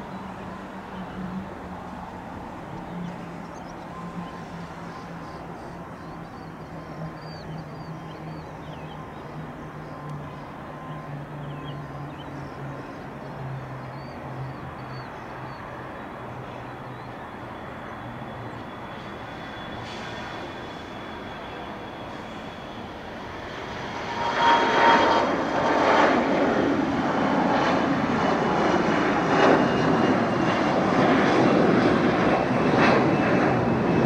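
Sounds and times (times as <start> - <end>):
distant jet engines rumbling: 0.0 - 34.0
small birds chirping: 2.8 - 19.7.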